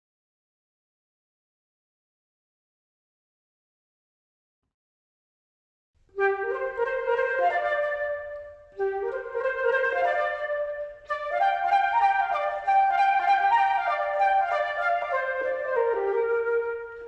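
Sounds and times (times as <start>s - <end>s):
woodwind melody: 6.1s - 17.0s.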